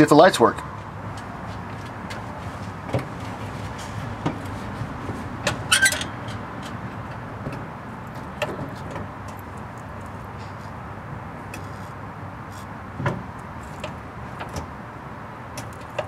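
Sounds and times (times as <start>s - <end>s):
short squeak: 5.7s - 6.4s
clicks and knocks of gear linkage: 15.5s - 16.0s.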